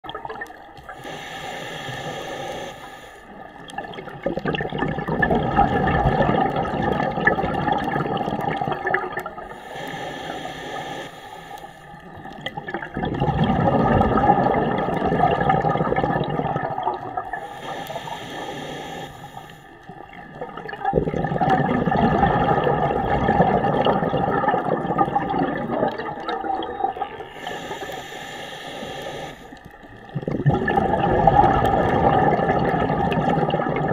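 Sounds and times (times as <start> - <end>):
diver inhaling through regulator: 0.8 - 3.5, 9.4 - 12.2, 17.2 - 19.9, 27.2 - 30.2
exhaled bubbles rushing: 3.6 - 9.6, 12.2 - 17.5, 19.9 - 27.3, 29.9 - 33.9.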